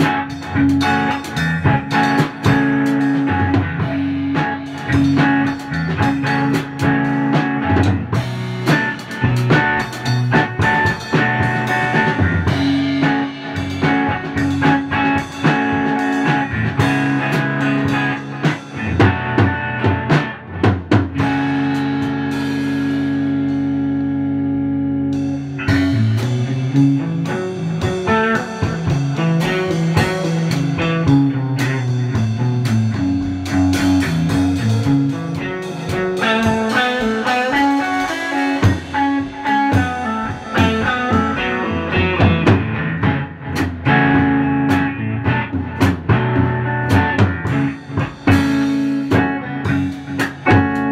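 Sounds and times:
drum kit: 0.0 - 50.9
electric guitar: 0.0 - 50.9.

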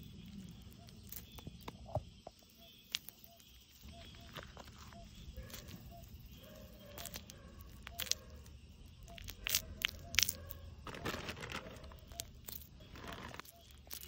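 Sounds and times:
honeycomb crackling in a hand: 7.0 - 14.0.

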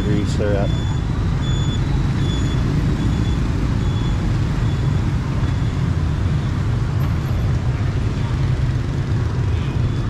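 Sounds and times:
city street traffic rumble: 0.0 - 10.0
faint high-pitched beep: 0.6 - 6.6, 9.7 - 10.0.

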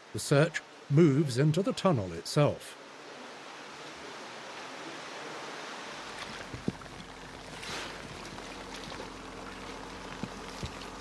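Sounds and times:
faint steady hum: 0.0 - 11.0
stream water splashing: 2.8 - 11.0.

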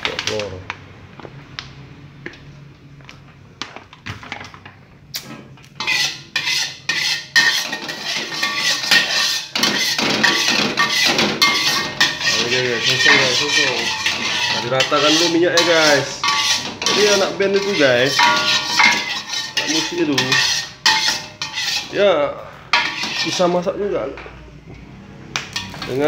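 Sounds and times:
metal utensil clattering on dishware: 5.8 - 21.9, 22.8 - 23.5.

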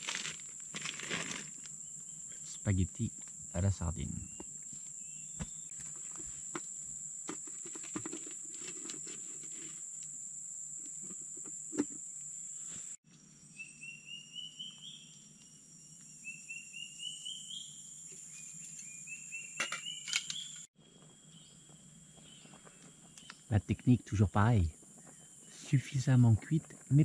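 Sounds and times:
high-pitched insect drone: 0.0 - 20.7.

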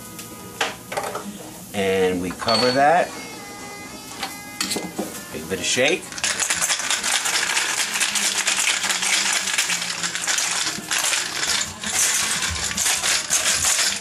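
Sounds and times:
ice rattling in cocktail shaker: 5.8 - 14.0.

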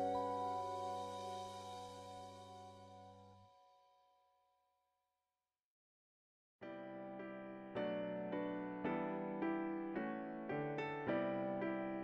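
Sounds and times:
held chord: 0.0 - 3.5
piano piece: 0.0 - 3.6, 6.7 - 12.0.

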